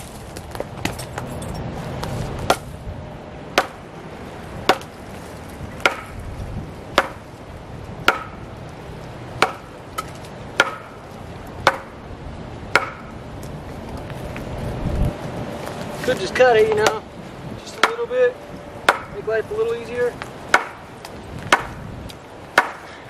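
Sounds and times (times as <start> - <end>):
tool striking wood: 3.6 - 3.8, 4.7 - 4.9, 5.8 - 6.1, 7.0 - 7.2, 8.0 - 8.4, 9.4 - 11.0, 11.6 - 12.0, 12.7 - 13.1, 16.7 - 17.0, 17.8 - 18.1, 18.9 - 19.2, 20.5 - 20.8, 21.5 - 21.8, 22.6 - 22.9.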